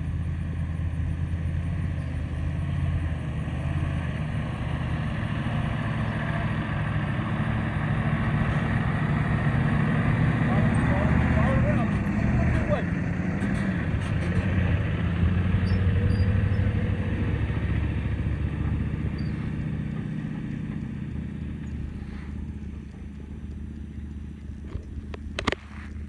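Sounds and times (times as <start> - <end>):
diesel truck engine rumble: 0.0 - 26.0
sharp clicks: 18.7 - 26.0.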